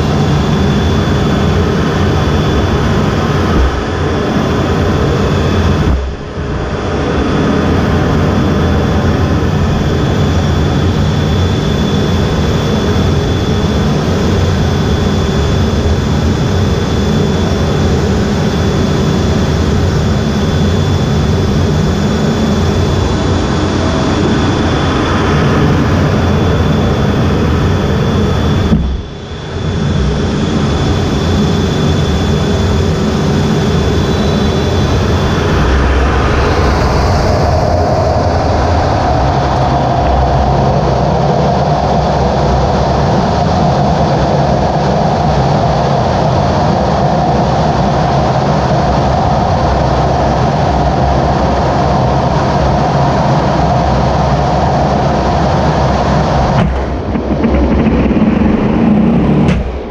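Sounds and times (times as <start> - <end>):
steady mid tone: 0.0 - 41.5, 55.9 - 59.9
heavy low rumble: 0.0 - 43.6, 54.6 - 59.9
jet engines rushing: 0.0 - 59.9.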